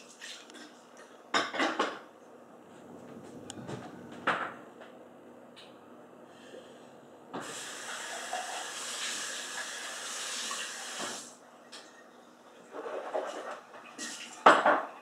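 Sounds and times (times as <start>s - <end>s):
water running from a tap: 7.4s - 11.3s.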